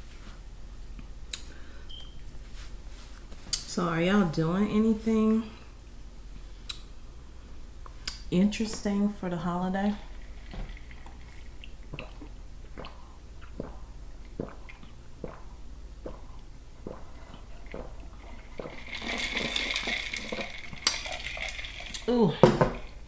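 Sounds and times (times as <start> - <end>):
drink slurped through a straw: 16.9 - 22.1.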